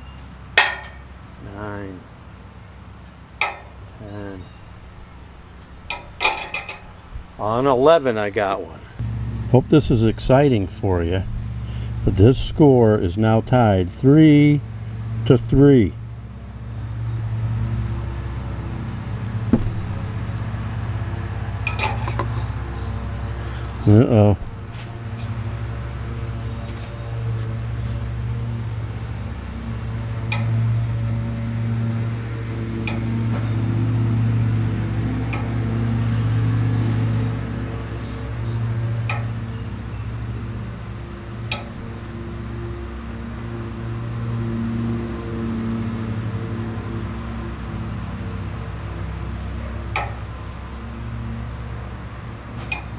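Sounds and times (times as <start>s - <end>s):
low engine hum: 0.0s - 52.9s
metal ring clinking on hook: 3.4s - 3.8s, 5.9s - 7.0s, 21.6s - 22.3s, 30.3s - 30.7s, 32.8s - 33.2s, 35.3s - 35.5s, 39.1s - 39.4s, 41.5s - 41.8s, 50.0s - 50.2s.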